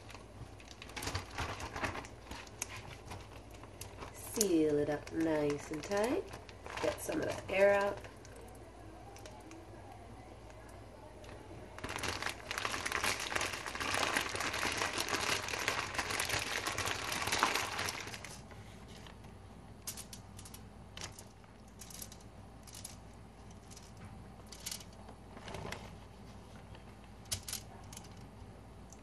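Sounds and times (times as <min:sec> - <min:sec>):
plastic bag crinkling and rustling: 0:00.0 - 0:08.5, 0:11.3 - 0:19.2.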